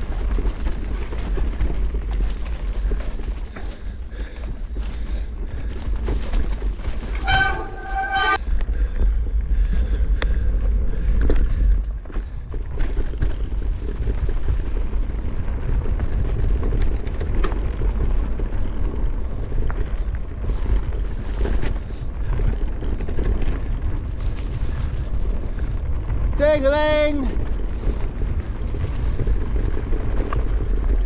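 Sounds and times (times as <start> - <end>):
bicycle tyres rumbling on dirt: 0.0 - 31.0
wind buffeting microphone: 0.0 - 31.0
bike clicks and knocks: 10.2 - 26.3.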